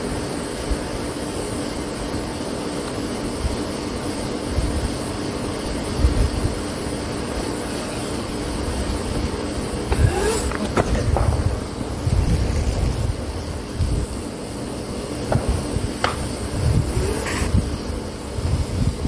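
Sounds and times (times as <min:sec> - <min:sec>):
wind rumble on microphone: 0:03.4 - 0:07.2, 0:08.5 - 0:14.4, 0:15.1 - 0:19.0
electric motor whine: 0:06.0 - 0:18.9.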